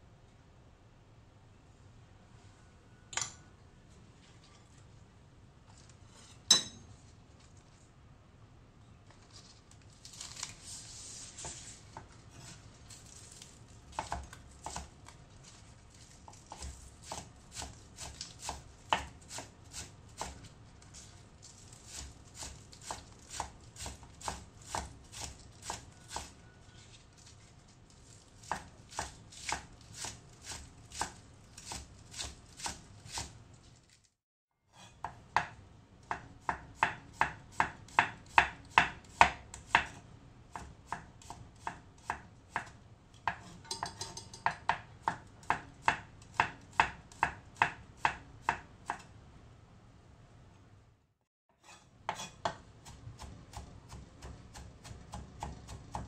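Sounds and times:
knife chopping on wooden board: 13.9 - 14.9, 16.3 - 20.5, 21.9 - 26.4, 28.4 - 33.3, 34.8 - 49.1, 51.6 - 56.0.

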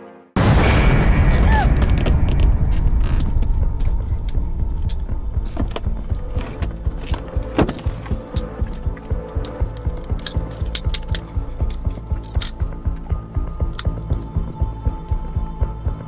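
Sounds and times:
loud impact boom: 0.4 - 4.6.

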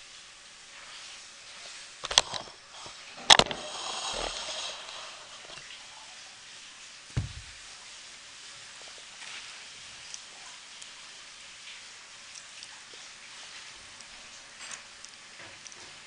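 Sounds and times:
hiss: 0.0 - 9.8
orange thudding onto carpet: 7.2 - 7.6.

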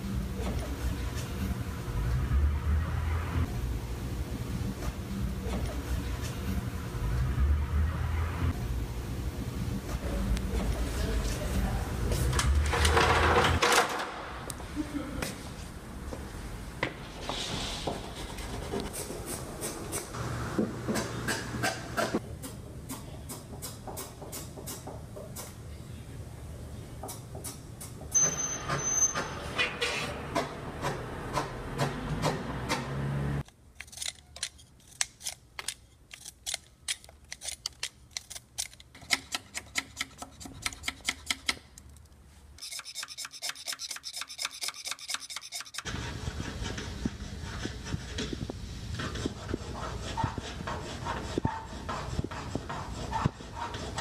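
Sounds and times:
knife shaving pencil: 42.6 - 48.1.

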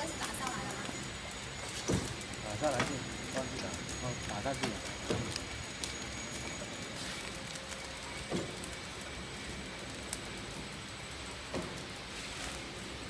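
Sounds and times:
wrapping machine humming: 0.0 - 13.0
machine mechanism thumps: 1.8 - 2.2.

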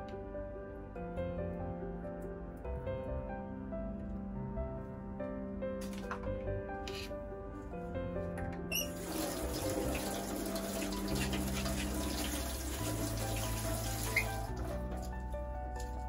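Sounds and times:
faucet running water: 8.7 - 16.0.

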